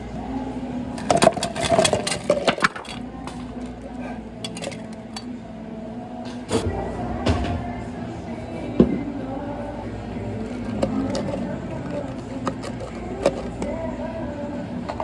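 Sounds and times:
ice cubes clattering into cup: 1.0 - 3.0.

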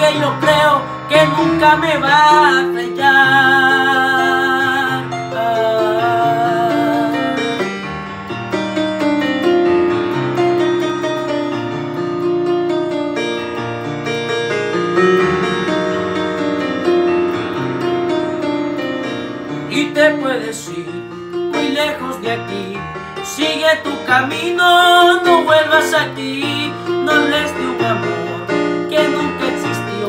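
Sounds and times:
young male voice singing: 0.0 - 7.7, 19.7 - 30.0
electronic keyboard playing chords: 0.0 - 30.0.

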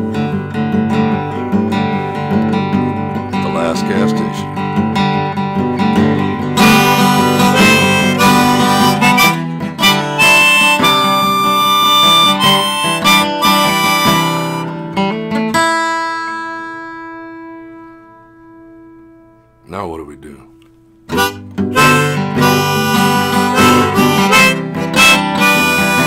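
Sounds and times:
strummed acoustic guitar: 0.0 - 20.1, 20.8 - 26.0
harmonica playing: 0.9 - 17.6, 21.1 - 26.0.

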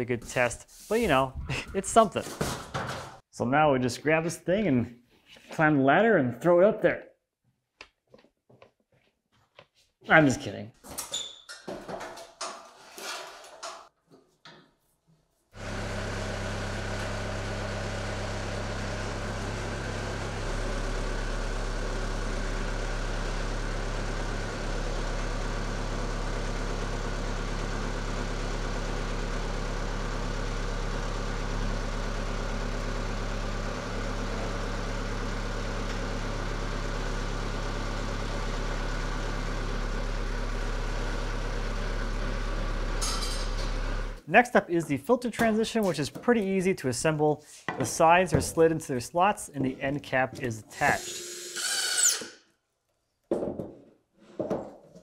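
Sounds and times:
loader engine droning: 15.6 - 44.2.

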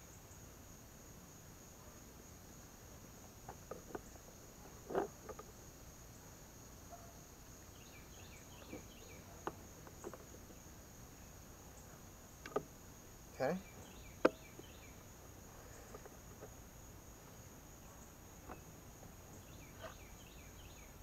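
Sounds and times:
insects buzzing: 0.0 - 21.0.

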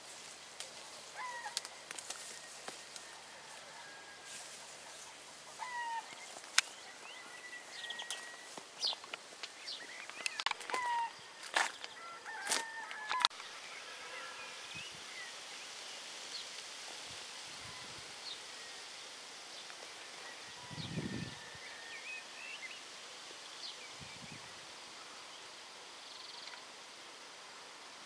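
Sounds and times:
wind through leaves: 0.0 - 28.0
birds chirping and whistling: 5.6 - 9.0.

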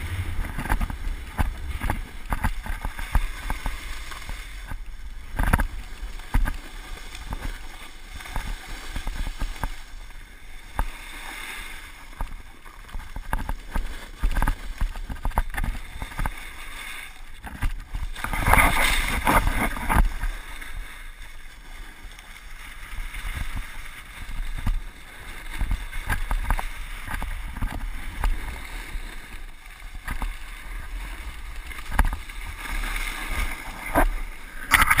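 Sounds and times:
snowboard scraping on snow: 0.0 - 4.6, 18.2 - 20.4
wind rumbling on microphone: 0.0 - 11.2, 12.0 - 20.9, 22.8 - 35.0.

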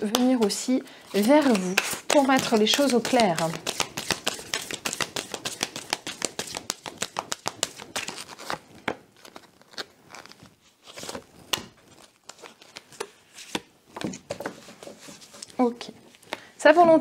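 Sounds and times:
cards shuffled by hand: 0.0 - 15.6.

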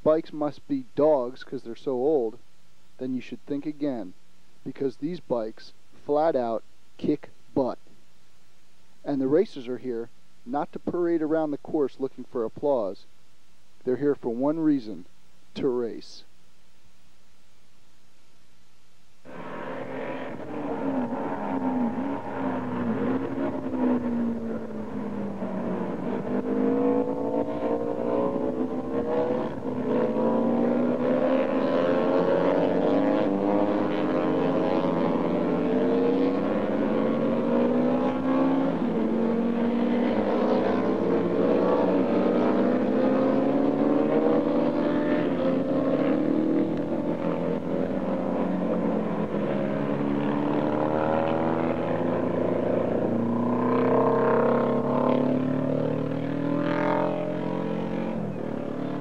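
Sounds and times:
racing motorcycles at full throttle: 19.3 - 59.0.

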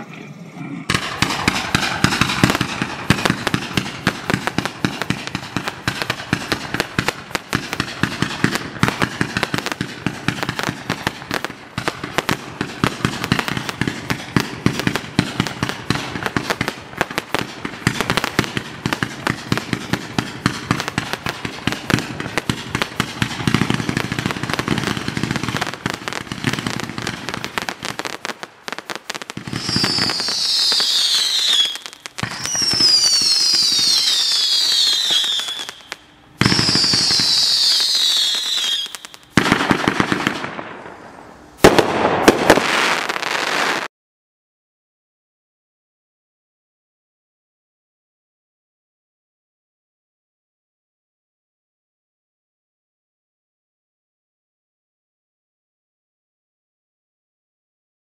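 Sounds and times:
fireworks shots and crackling bursts: 0.0 - 43.9
fireworks whistles falling in pitch: 27.9 - 43.9.

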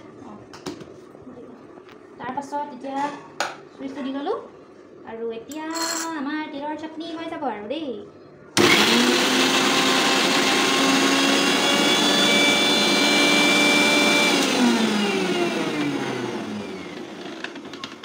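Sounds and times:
mixer grinder whining: 8.6 - 18.0.

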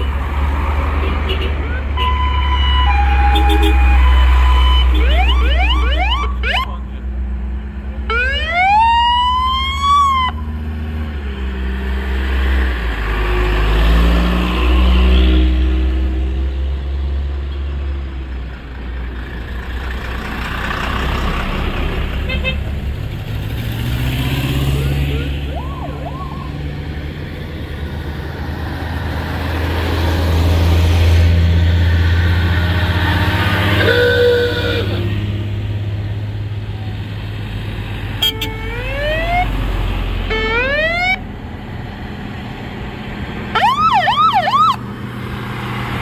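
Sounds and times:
vehicle engines rumbling: 0.0 - 46.0
siren wailing: 1.6 - 6.8, 8.1 - 10.5, 24.6 - 26.7, 38.5 - 39.6, 40.2 - 41.2, 43.5 - 44.8.

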